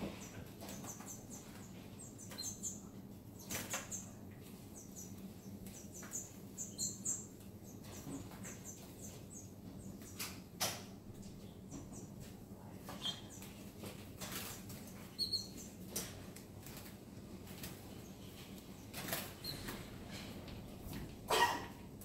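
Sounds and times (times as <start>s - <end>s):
birds chirping: 0.0s - 15.9s
birds hopping clicks: 0.1s - 21.1s
wings fluttering: 13.0s - 21.1s.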